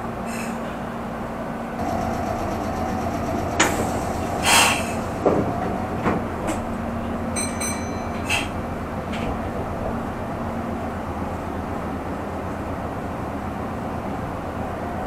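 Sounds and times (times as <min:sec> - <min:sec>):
train running hum: 0:00.0 - 0:15.0
short hiss: 0:04.4 - 0:05.1.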